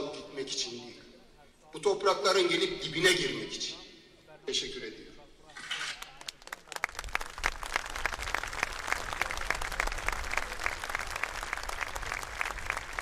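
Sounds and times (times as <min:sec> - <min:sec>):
crowd applauding: 0:06.0 - 0:13.0.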